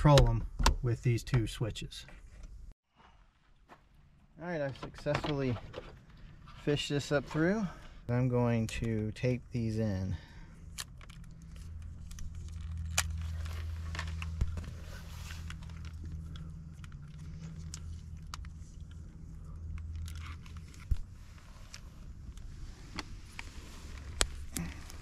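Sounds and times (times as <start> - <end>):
tape crinkling and tearing: 10.8 - 14.4.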